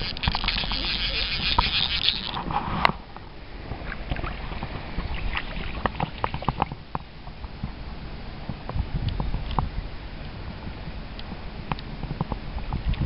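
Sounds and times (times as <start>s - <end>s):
water sloshing and dripping: 0.0s - 7.1s.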